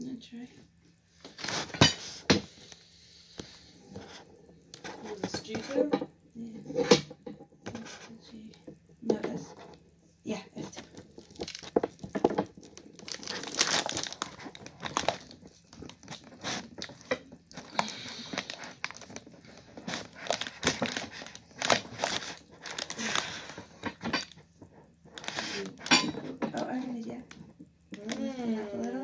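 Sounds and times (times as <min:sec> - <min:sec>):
cardboard rustling and crinkling: 0:10.5 - 0:25.9.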